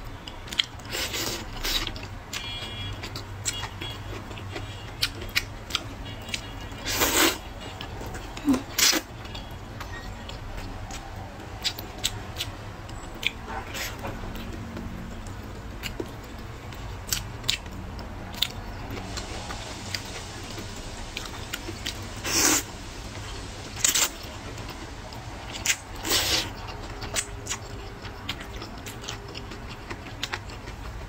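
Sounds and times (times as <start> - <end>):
wet chewing and lip smacks: 0.3 - 6.7, 8.8 - 22.0, 23.8 - 31.0
slurping noodles: 6.8 - 7.4, 22.2 - 22.7, 26.0 - 26.6.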